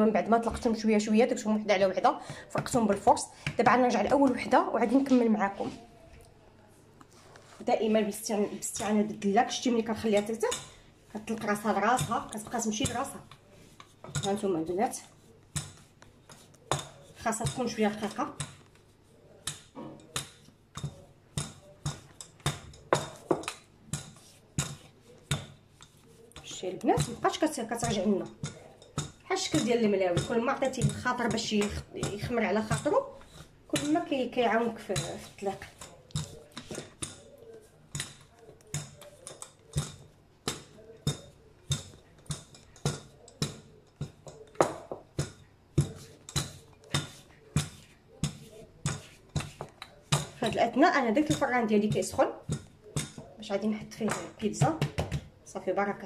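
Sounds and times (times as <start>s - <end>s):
rolling pin knocking on stone: 54.0s - 55.3s.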